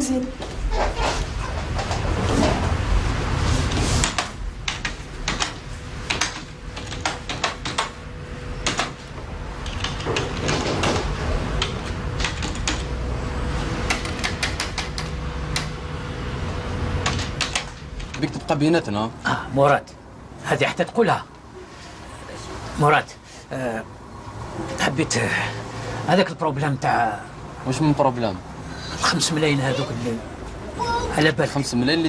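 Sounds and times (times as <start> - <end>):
typing on keyboard: 4.1 - 7.9, 9.6 - 10.6, 11.6 - 12.9.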